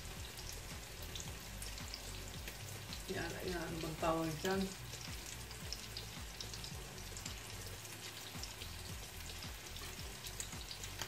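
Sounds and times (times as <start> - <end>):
crackles and pops of frying: 0.0 - 11.0
omelette sizzling in oil: 0.0 - 11.0.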